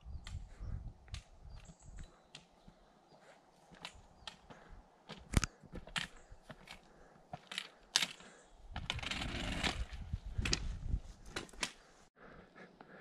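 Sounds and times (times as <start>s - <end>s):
footsteps on rock and gravel: 1.1s - 8.9s.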